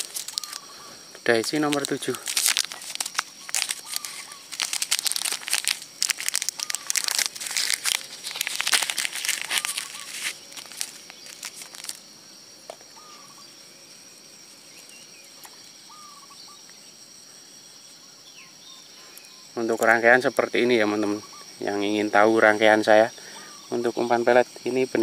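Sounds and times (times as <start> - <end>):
plastic packet crinkling: 0.0 - 0.7, 1.3 - 12.0
high insect drone: 0.0 - 25.0.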